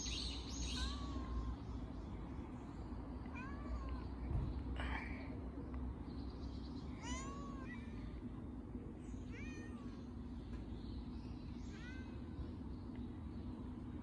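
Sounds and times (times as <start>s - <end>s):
steady low hum: 0.0s - 14.0s
cat meowing: 0.7s - 1.6s.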